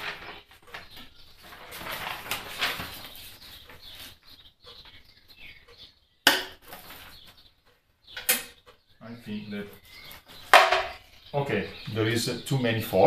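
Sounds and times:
paper rustling: 0.0 - 4.2.

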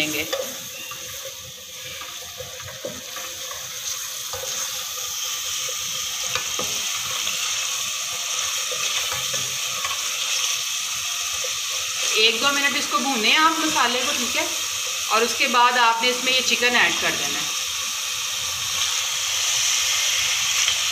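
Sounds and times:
wooden spatula scraping a pot: 0.0 - 10.6
masala sizzling in oil: 0.0 - 20.9.

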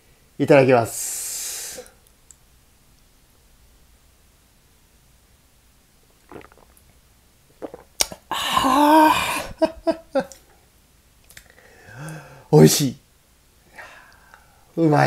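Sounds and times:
hissing voiced exhale: 0.9 - 2.0
lip smacks: 6.1 - 7.0, 7.6 - 8.3, 11.2 - 11.5
person sipping from a cup: 6.1 - 8.7.

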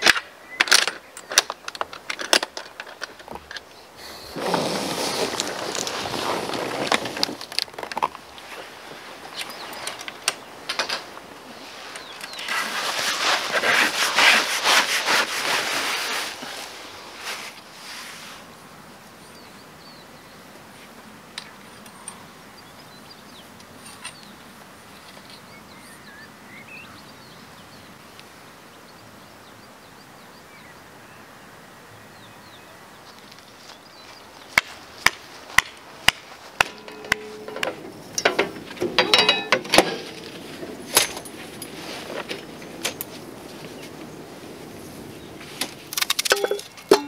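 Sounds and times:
camping gear clattering: 0.0 - 17.6, 34.6 - 47.0
sharp knocks: 34.6 - 40.3.

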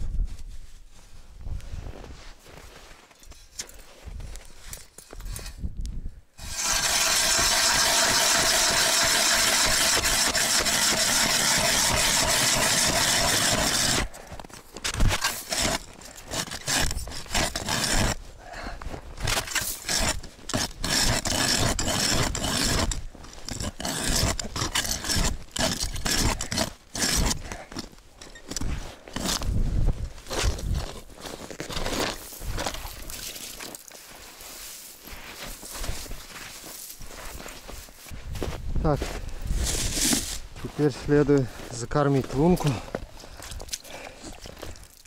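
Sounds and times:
hand ice auger drilling ice: 6.4 - 18.3, 19.1 - 33.9, 39.6 - 40.4, 42.2 - 45.0.

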